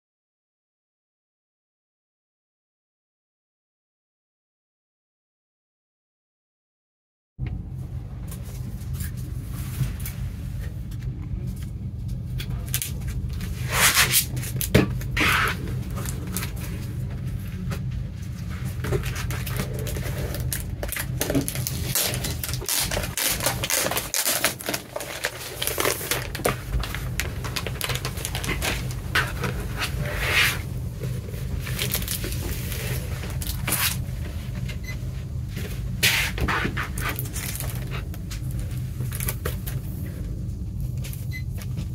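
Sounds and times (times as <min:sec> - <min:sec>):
low steady hum: 0:07.4 - 0:41.9
paper sleeve rustling: 0:12.7 - 0:34.6, 0:35.6 - 0:40.0
cardboard scraping on table: 0:13.4 - 0:16.6, 0:21.3 - 0:30.6
plastic sleeve crinkling: 0:18.4 - 0:34.4, 0:36.0 - 0:39.9.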